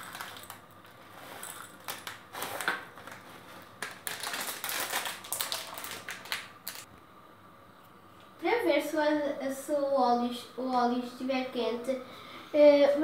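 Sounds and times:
popcorn kernels rattling into cup: 0.0 - 3.2, 3.8 - 6.8
plastic bag crinkling: 0.0 - 6.9.

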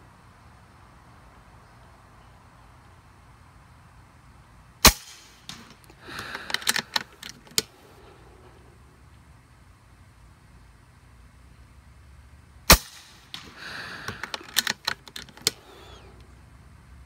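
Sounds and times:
air rifle shot: 4.8 - 7.0, 12.7 - 14.7
small clicks and rattles: 5.5 - 7.7, 13.3 - 15.6.

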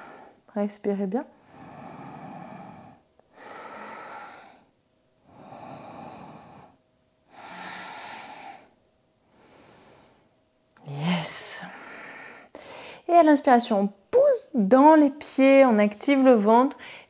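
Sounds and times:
woman breathing deeply: 0.0 - 0.5, 1.4 - 10.4, 11.2 - 13.1, 16.8 - 17.0.

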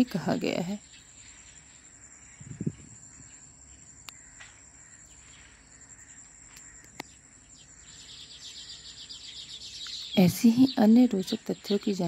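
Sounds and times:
crickets trilling: 0.0 - 12.0
sharp clicks: 6.5 - 7.2.

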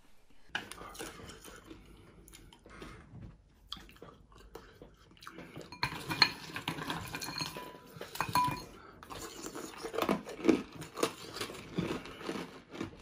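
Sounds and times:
crockery clinking on table: 7.0 - 8.8.

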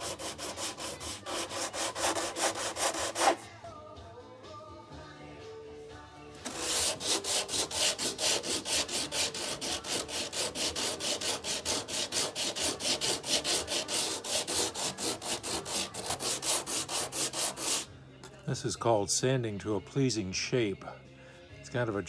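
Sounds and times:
sandpaper rasping strokes: 0.0 - 3.4, 6.4 - 17.9.

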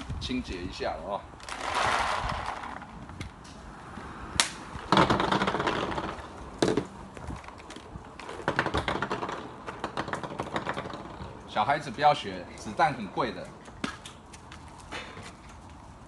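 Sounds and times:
paintballs rattling and clattering: 1.4 - 3.0.

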